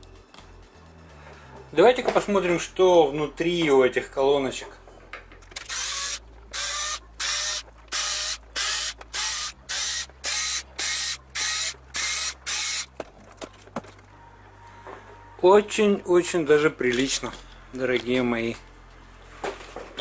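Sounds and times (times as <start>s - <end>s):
cordless screwdriver whirring: 5.6s - 12.9s.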